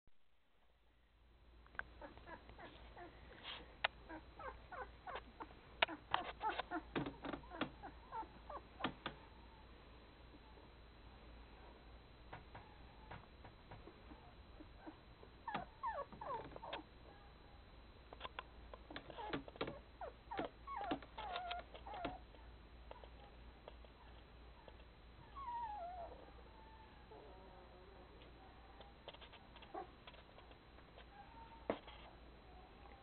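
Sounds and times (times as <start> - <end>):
puppies squeaking and whimpering: 4.1 - 5.3, 5.9 - 8.6, 14.8 - 16.8, 20.0 - 22.2, 24.0 - 27.0.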